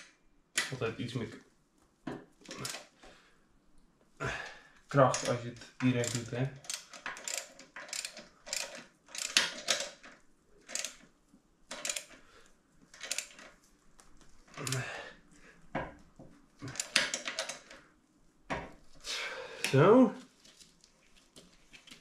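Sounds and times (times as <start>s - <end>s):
ratchet wrench clicking: 5.1s - 10.0s, 10.7s - 11.0s, 11.7s - 12.1s, 16.7s - 17.6s.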